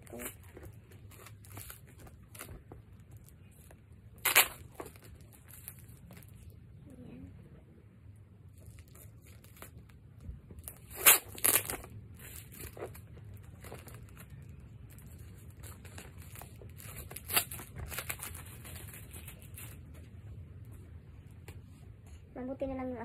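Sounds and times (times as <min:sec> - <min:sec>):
paper and plastic crinkling: 0:00.0 - 0:06.6, 0:08.5 - 0:20.2
paper tearing: 0:10.6 - 0:13.0.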